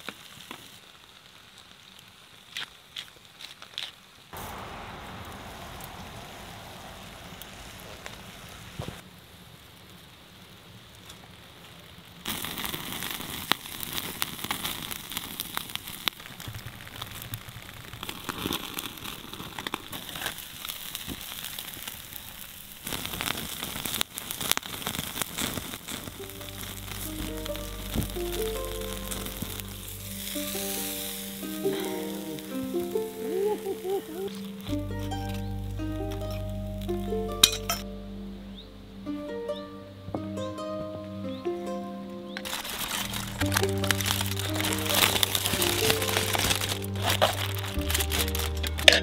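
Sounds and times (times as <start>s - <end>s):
wood fire crackling and popping: 0.0s - 37.8s, 42.4s - 49.0s
fish sizzling on grill: 0.0s - 37.9s, 42.4s - 49.0s
background music: 26.1s - 49.0s.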